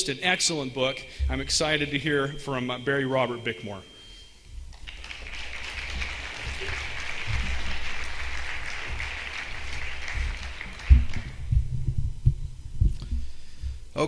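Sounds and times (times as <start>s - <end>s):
audience applauding: 4.7s - 11.5s.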